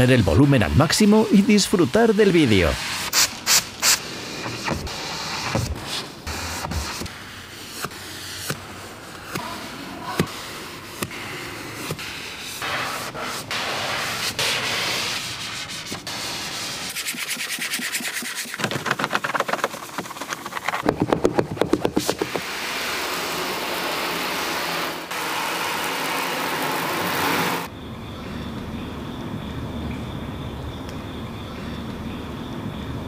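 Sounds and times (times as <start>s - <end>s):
brush scrubbing: 11.7s - 27.7s
spray gun hissing: 22.3s - 27.7s.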